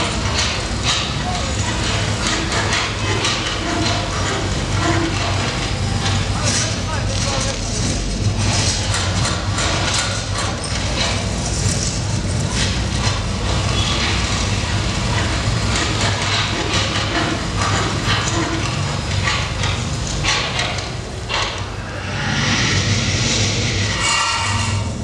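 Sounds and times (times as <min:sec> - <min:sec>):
noisy hiss: 0:19.8 - 0:25.0.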